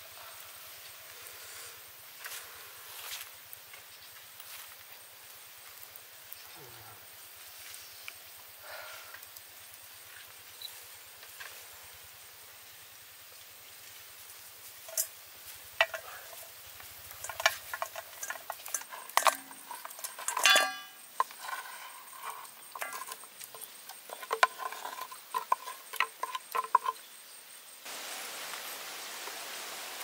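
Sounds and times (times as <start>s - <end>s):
bamboo and food knocking on metal bowl: 14.9s - 15.2s, 15.8s - 27.0s
ringing knock on metal bowl: 20.4s - 21.0s.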